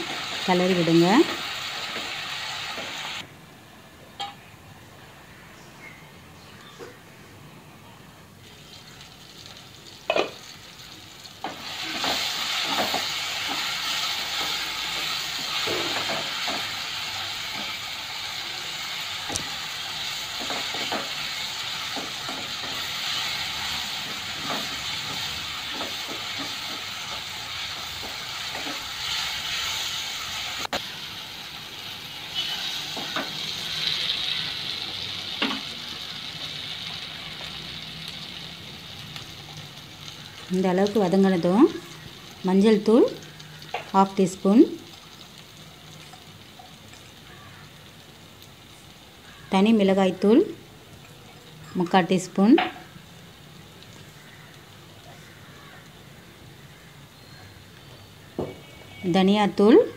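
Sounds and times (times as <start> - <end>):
onions frying in a pan: 0.0 - 3.3, 8.4 - 59.9
spatula scraping a pan: 32.2 - 33.4.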